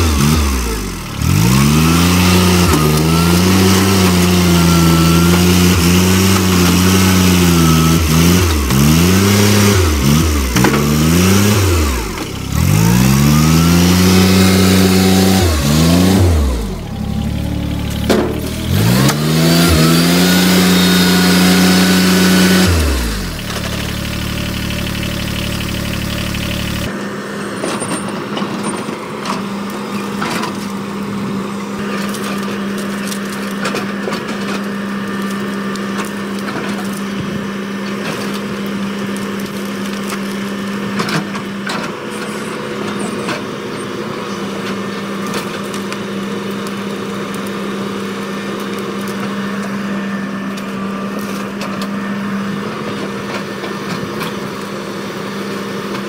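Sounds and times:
bucket tearing through brush: 0.0s - 26.9s, 31.8s - 43.5s
wood cracking and snapping: 0.0s - 26.9s, 31.8s - 43.4s, 44.6s - 52.0s
excavator engine running: 0.0s - 56.0s
tractor engine revving: 0.0s - 56.0s.

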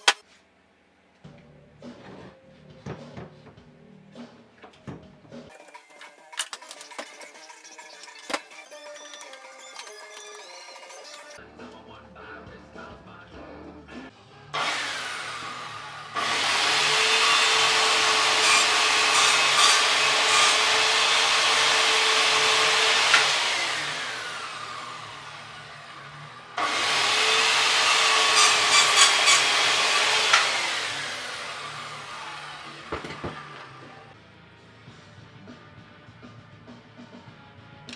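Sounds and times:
circular saw cutting wood: 14.6s - 34.1s.

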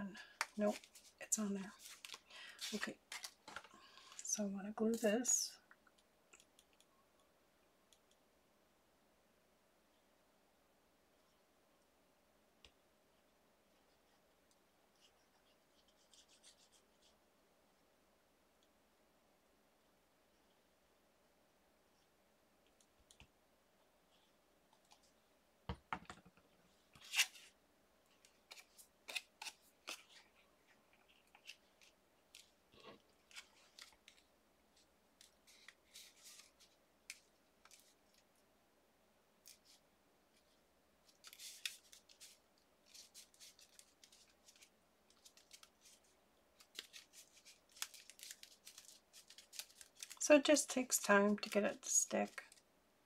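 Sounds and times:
paper rustling and clicking: 41.0s - 50.2s.

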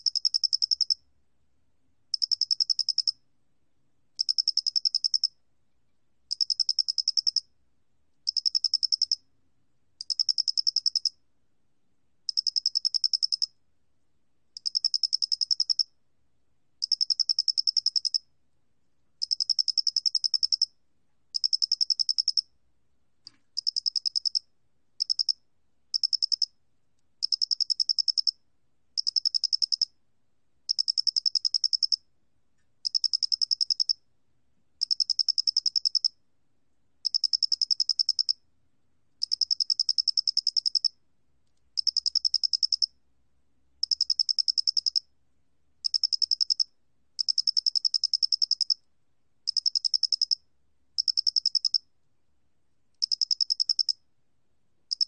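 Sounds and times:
cricket chirping: 0.0s - 1.0s, 2.1s - 3.2s, 4.2s - 5.4s, 6.3s - 7.5s, 8.3s - 9.2s, 10.0s - 11.2s, 12.3s - 13.6s, 14.6s - 16.0s, 16.8s - 18.3s, 19.2s - 22.5s, 23.6s - 26.6s, 27.2s - 28.4s, 29.0s - 30.0s, 30.7s - 32.1s, 32.8s - 34.0s, 34.8s - 36.2s, 37.0s - 38.4s, 39.2s - 41.0s, 41.8s - 43.0s, 43.8s - 45.1s, 45.8s - 48.9s, 49.5s - 51.9s, 53.0s - 54.0s.

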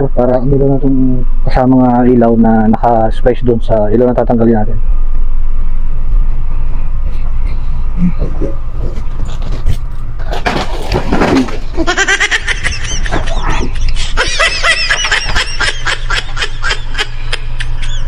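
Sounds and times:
low hum: 0.0s - 18.0s
cartoon laughing sound effect: 11.8s - 18.0s.

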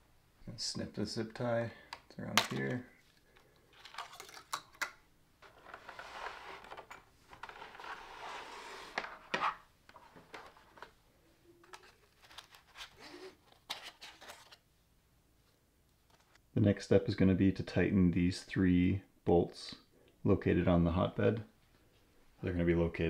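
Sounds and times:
soft rustling and scraping: 5.4s - 14.6s.

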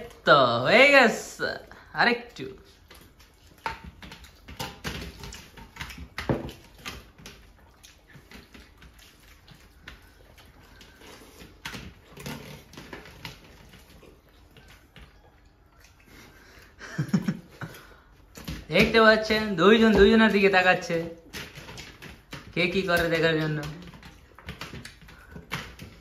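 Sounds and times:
wet chewing and lip-smacking: 1.7s - 18.6s, 23.4s - 26.0s
fingers squelching rice and gravy: 2.7s - 16.5s.

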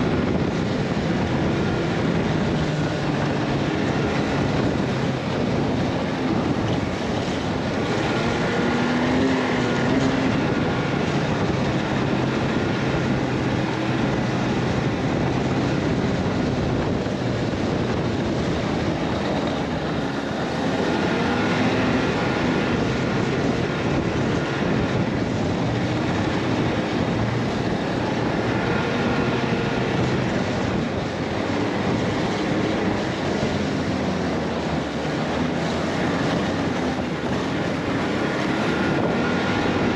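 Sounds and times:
constant rushing noise: 0.0s - 39.9s
vehicle engine running: 0.0s - 39.9s.

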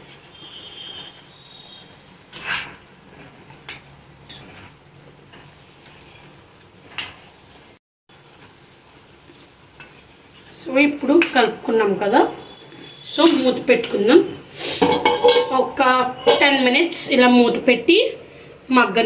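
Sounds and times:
metal spoon scraping a pan: 2.3s - 2.8s, 12.8s - 16.8s.

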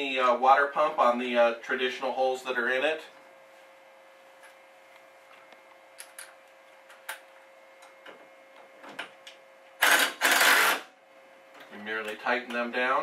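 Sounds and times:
cordless driver running: 9.8s - 10.8s.

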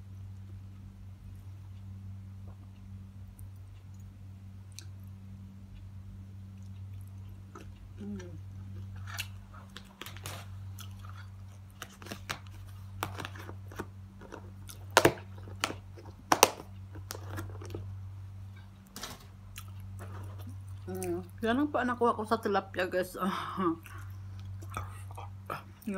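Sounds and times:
steady low hum: 0.0s - 25.9s
person chewing: 6.5s - 17.9s, 19.5s - 21.3s, 23.8s - 25.9s.

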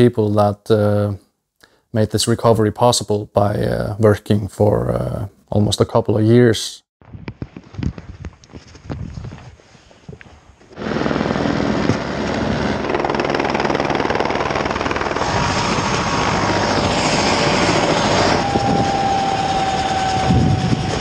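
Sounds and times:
helicopter rotor and engine: 10.8s - 21.0s
high-pitched whine: 15.3s - 21.0s.

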